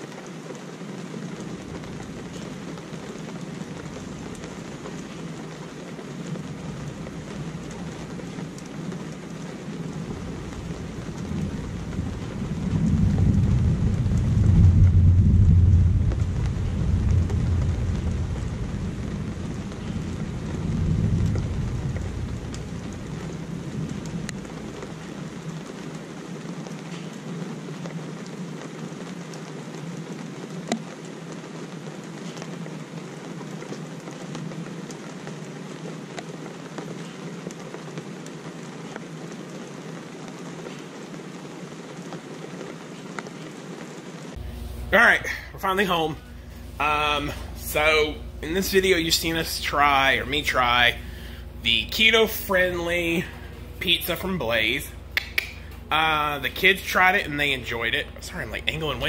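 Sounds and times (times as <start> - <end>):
steady rain falling: 0.0 - 59.0
rolling thunder: 1.1 - 31.8.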